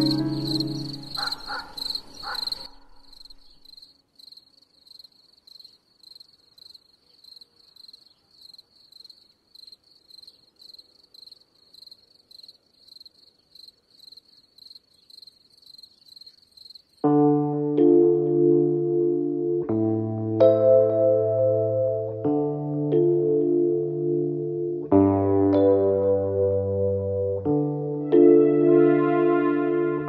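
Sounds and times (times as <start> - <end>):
piano-like music phrase: 0.0 - 1.4, 17.0 - 30.0
cricket chirping: 0.0 - 17.1.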